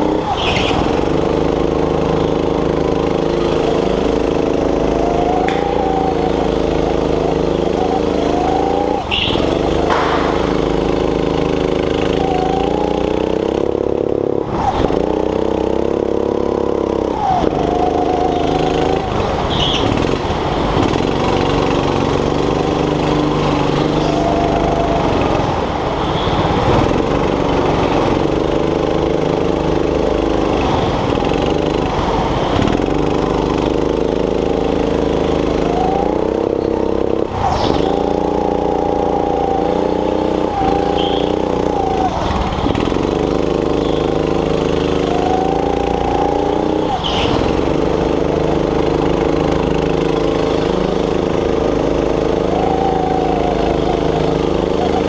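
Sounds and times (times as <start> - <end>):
go-kart engine running hard: 0.0 - 55.0
short high squeaks: 0.2 - 1.0, 3.4 - 13.4, 17.2 - 20.1, 37.4 - 49.5.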